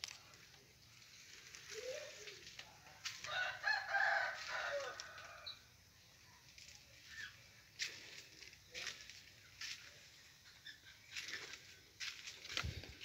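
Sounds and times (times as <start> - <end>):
rooster crowing: 3.1 - 5.7.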